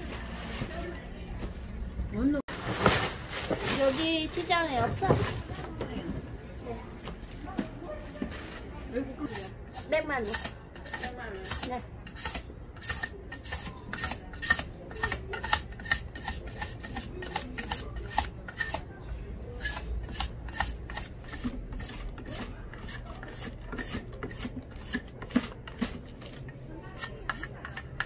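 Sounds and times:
blade scraping sugar cane rind: 9.2s - 18.9s, 19.5s - 28.0s.

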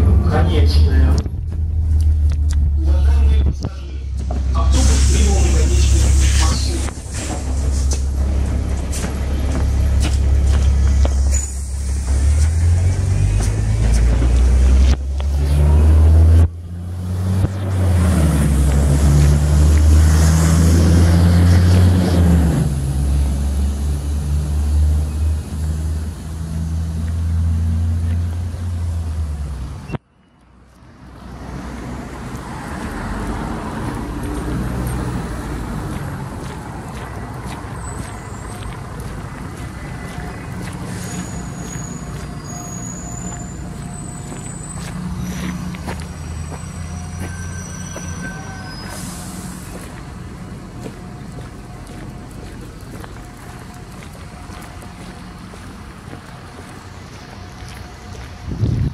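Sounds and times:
large vehicle engine running: 0.0s - 29.9s, 31.7s - 58.9s
street traffic: 0.0s - 58.9s.

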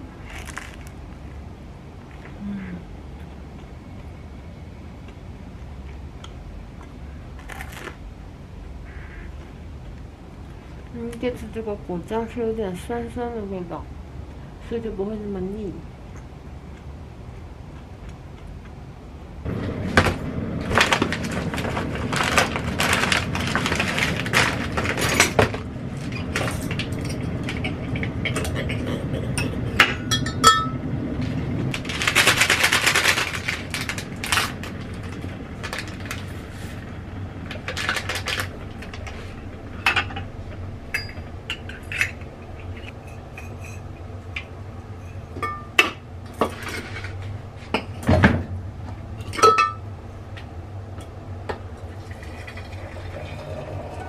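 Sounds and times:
glass and metal kitchenware clinking: 29.4s - 30.8s, 40.9s - 42.2s, 45.0s - 46.8s, 49.2s - 49.8s.

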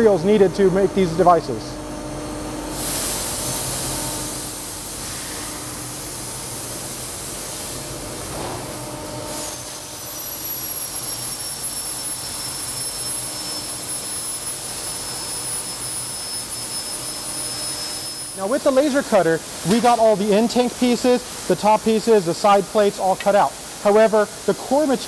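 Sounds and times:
laser cutter hissing rush: 2.7s - 25.0s
thin high whine: 8.4s - 20.1s.

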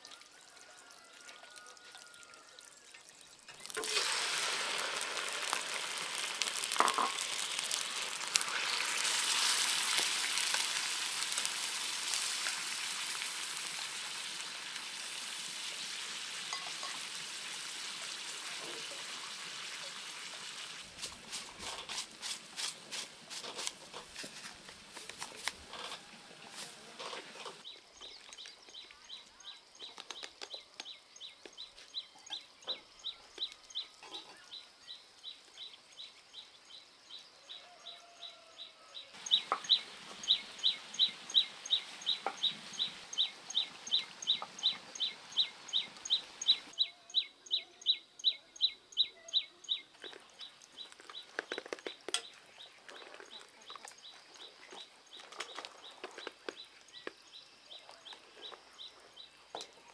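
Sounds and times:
steady hiss: 3.5s - 25.8s, 39.2s - 46.8s.

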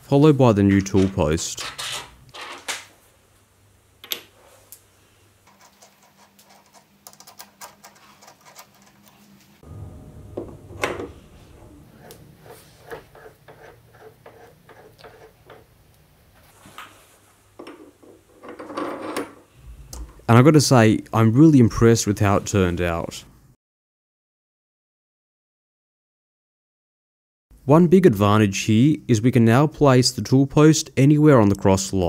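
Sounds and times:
faint low hum: 3.1s - 23.4s.

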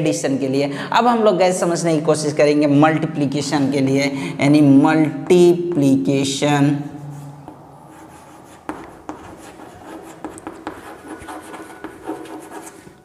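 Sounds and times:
chalk scratching on chalkboard: 6.9s - 13.0s
chalk tapping on chalkboard: 7.4s - 13.0s.

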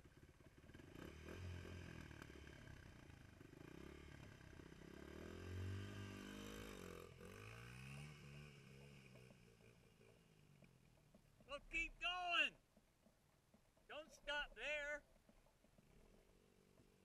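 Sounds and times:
dirt bike passing by: 0.0s - 12.5s, 14.0s - 17.0s
dirt bike engine revving: 0.6s - 10.2s.

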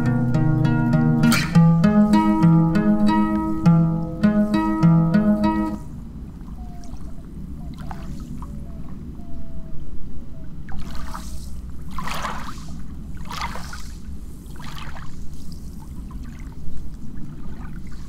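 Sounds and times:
water sloshing and lapping: 6.3s - 9.0s, 10.7s - 18.0s.

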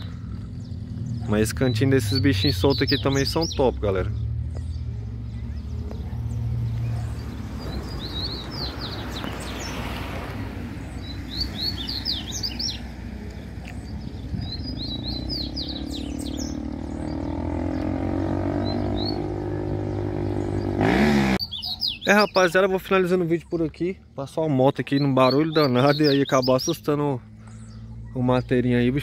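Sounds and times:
bird twittering: 0.0s - 9.8s, 10.8s - 22.6s, 24.8s - 29.0s
motorcycle engine approaching: 0.0s - 21.8s.

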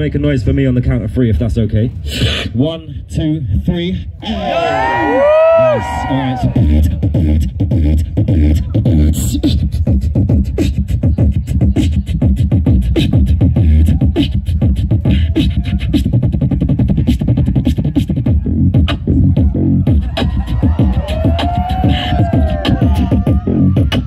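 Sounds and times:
beatboxing through microphone: 0.0s - 4.2s, 5.6s - 24.0s.

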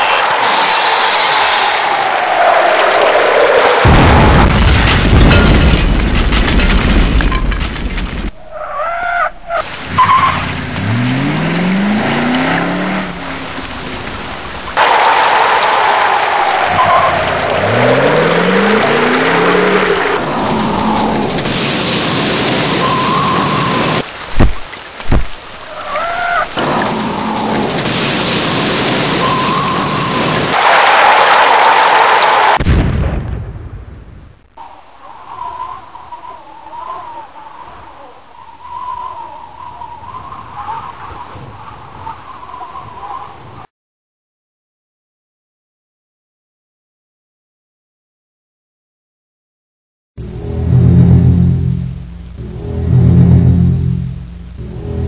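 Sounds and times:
roar of wind and rain: 9.3s - 43.7s
vehicle engine revving: 9.6s - 14.7s, 16.7s - 21.4s, 50.2s - 55.0s
rising wavering tone: 50.2s - 55.0s.

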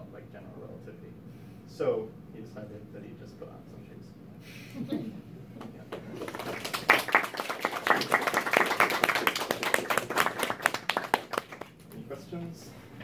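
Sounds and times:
audience applauding: 5.9s - 11.8s.

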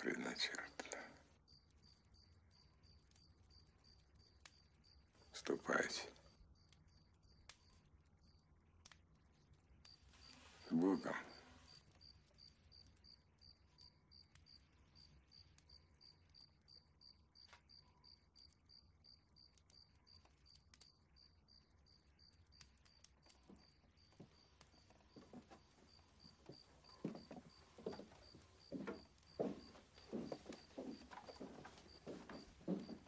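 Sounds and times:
crickets chirping: 1.4s - 8.5s, 9.8s - 33.0s
soft thuds: 25.2s - 33.0s.

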